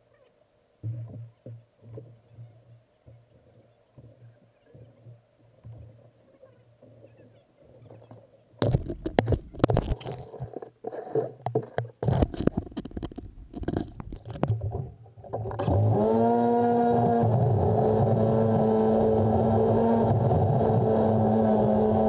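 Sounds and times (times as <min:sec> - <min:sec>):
snow scraping and knocking: 0:08.6 - 0:22.0
garden tractor engine starting: 0:15.3 - 0:22.0.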